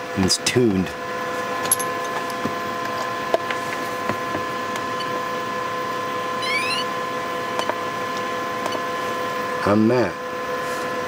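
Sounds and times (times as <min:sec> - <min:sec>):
electrical hum and hiss: 0:00.0 - 0:11.0
rising electronic chirp: 0:06.4 - 0:06.9.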